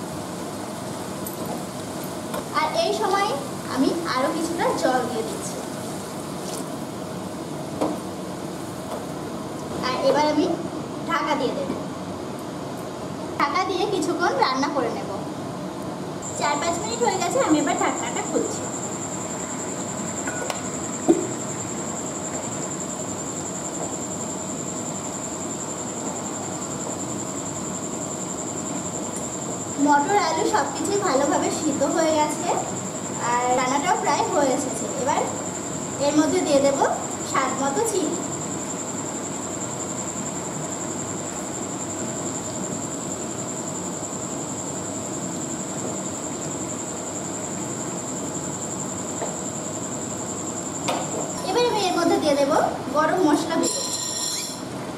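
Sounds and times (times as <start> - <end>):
high-pitched whine: 16.2 - 54.8.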